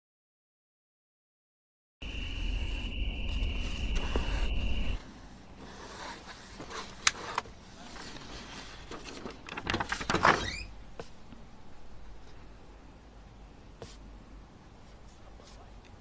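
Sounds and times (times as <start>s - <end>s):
low rumble: 2.0s - 5.0s.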